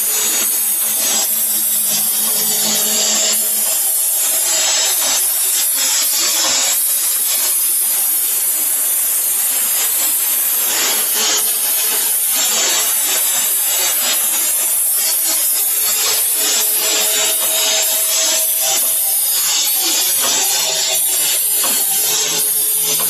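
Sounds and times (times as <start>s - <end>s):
machine high hissing: 0.0s - 23.0s.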